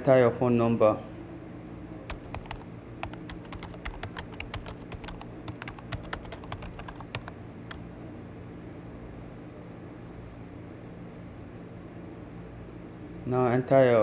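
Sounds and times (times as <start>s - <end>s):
low steady hum: 0.0s - 14.0s
keyboard keystroke clicks: 2.1s - 7.3s.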